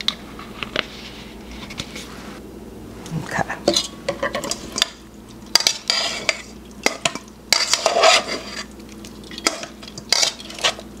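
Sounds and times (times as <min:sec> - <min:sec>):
metal tongs scraping steel bowl: 0:05.6 - 0:08.7.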